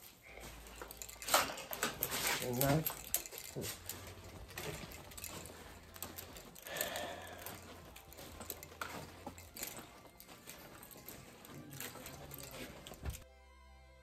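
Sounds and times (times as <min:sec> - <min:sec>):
handling rustle: 0:00.0 - 0:13.2
footsteps indoors: 0:00.0 - 0:13.3.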